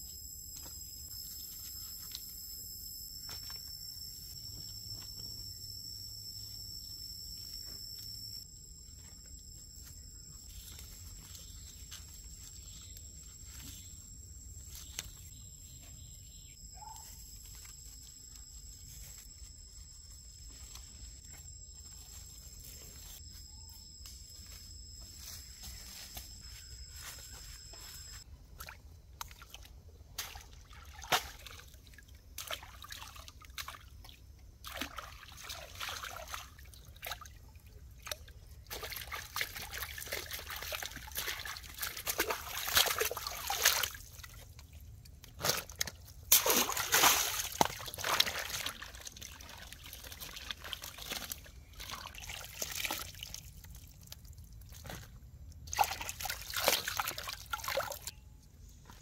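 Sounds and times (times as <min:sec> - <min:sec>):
water sloshing and splashing: 0:28.6 - 0:58.1.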